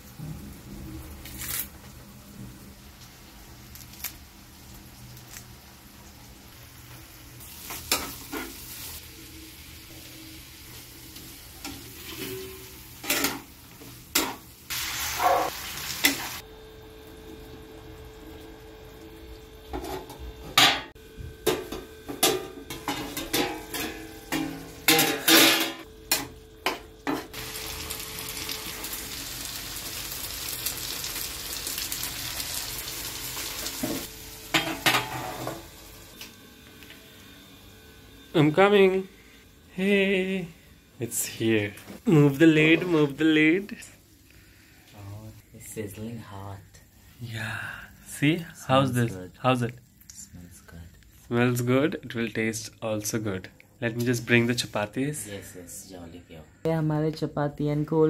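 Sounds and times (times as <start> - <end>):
food sizzling in a frying pan: 0.0 - 21.0, 21.6 - 36.4.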